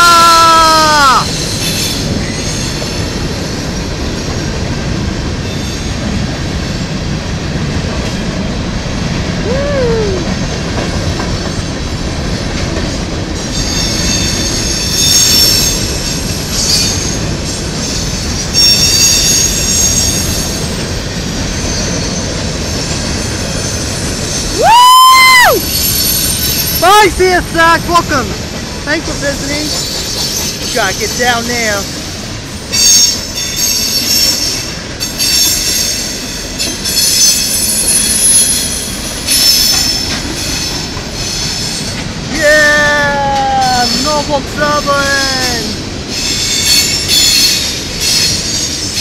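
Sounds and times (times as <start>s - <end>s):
train wheels rumbling on rail: 0.0s - 49.0s
high-pitched wheel squeal: 13.5s - 17.2s, 24.3s - 27.0s.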